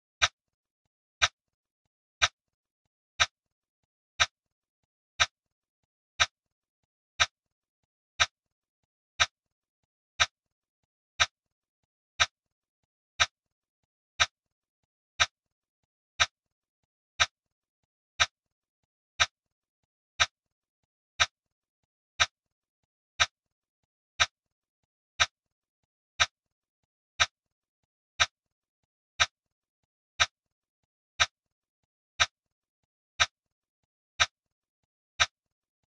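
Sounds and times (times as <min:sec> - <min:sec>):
timer ticking clicks: 0:02.2 - 0:02.4, 0:04.2 - 0:04.4, 0:05.2 - 0:05.4, 0:06.2 - 0:06.4, 0:07.2 - 0:07.4, 0:08.2 - 0:08.4, 0:09.2 - 0:09.4, 0:11.2 - 0:11.4, 0:12.2 - 0:12.4, 0:15.2 - 0:15.4, 0:19.2 - 0:19.4, 0:21.2 - 0:21.4, 0:22.2 - 0:22.4, 0:23.2 - 0:23.4, 0:24.2 - 0:24.4, 0:25.2 - 0:25.4, 0:26.2 - 0:26.4, 0:27.2 - 0:27.4, 0:28.2 - 0:28.4, 0:29.2 - 0:29.4, 0:30.2 - 0:30.4, 0:31.2 - 0:31.4, 0:32.2 - 0:32.4, 0:33.2 - 0:33.4, 0:34.2 - 0:34.4, 0:35.1 - 0:35.9.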